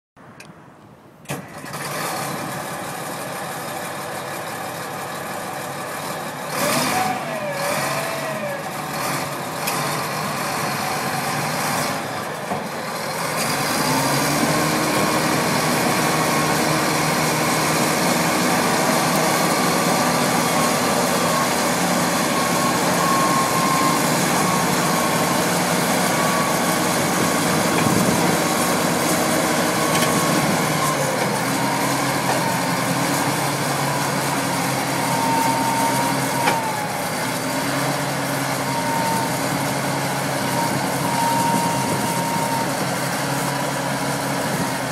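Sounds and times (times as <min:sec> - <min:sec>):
bulldozer diesel engine: 0:00.2 - 0:44.9
wavering squeals: 0:18.6 - 0:37.1, 0:38.5 - 0:42.9.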